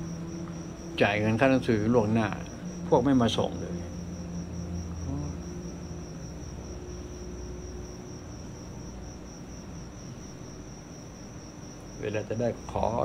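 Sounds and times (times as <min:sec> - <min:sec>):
crickets chirping: 0:00.0 - 0:13.0
faint low hum: 0:00.0 - 0:13.0.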